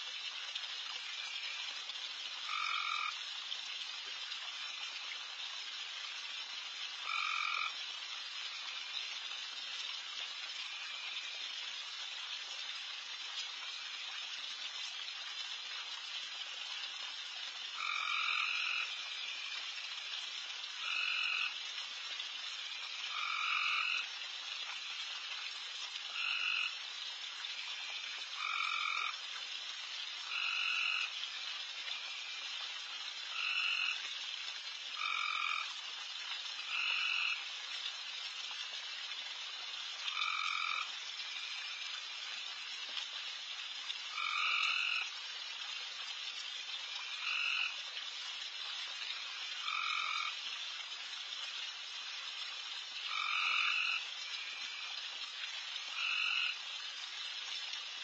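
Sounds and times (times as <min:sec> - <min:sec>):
frog chorus: 0:02.4 - 0:03.2, 0:07.0 - 0:09.2, 0:10.6 - 0:11.4, 0:17.7 - 0:21.6, 0:22.6 - 0:24.1, 0:26.1 - 0:26.8, 0:27.5 - 0:29.2, 0:30.2 - 0:32.5, 0:33.3 - 0:34.0, 0:35.0 - 0:35.8, 0:36.6 - 0:37.5, 0:40.0 - 0:42.1, 0:44.1 - 0:45.2, 0:46.9 - 0:47.8, 0:49.1 - 0:50.4, 0:53.0 - 0:55.0, 0:55.9 - 0:56.6
loud trilled frog call: 0:02.4 - 0:03.2, 0:07.0 - 0:07.8, 0:17.8 - 0:19.6, 0:20.8 - 0:21.6, 0:22.6 - 0:24.1, 0:27.8 - 0:29.2, 0:30.2 - 0:31.2, 0:33.3 - 0:34.0, 0:35.0 - 0:35.7, 0:36.7 - 0:37.4, 0:40.1 - 0:41.8, 0:44.1 - 0:45.1, 0:47.1 - 0:47.8, 0:49.6 - 0:50.4, 0:53.1 - 0:54.9, 0:55.9 - 0:56.6.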